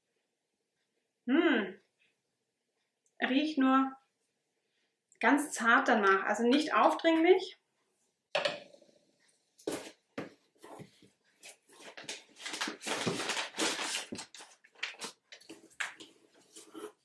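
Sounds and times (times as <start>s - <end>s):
packaging rustling: 11.5s - 16.1s.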